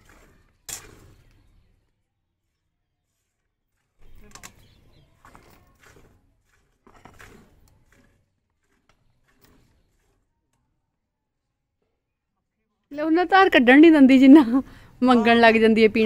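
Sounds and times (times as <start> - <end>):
milk squirting into steel bucket: 0.0 - 1.8, 3.1 - 10.3.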